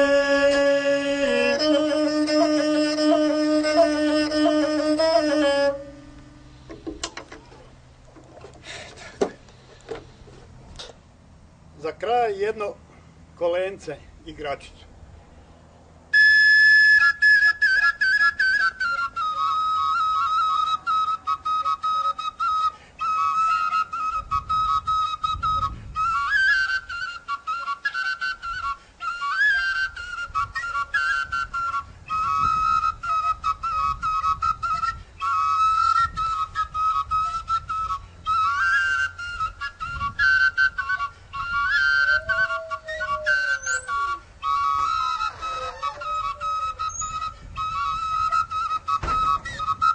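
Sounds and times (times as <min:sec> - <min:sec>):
high whistle melody: 0:01.2 - 0:06.7, 0:16.2 - 0:49.9.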